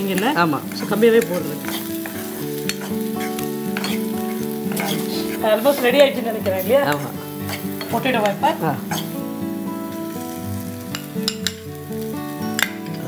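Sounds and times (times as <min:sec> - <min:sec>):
metal ladle stirring: 0:00.0 - 0:09.2
vegetables sizzling in oil: 0:00.0 - 0:13.0.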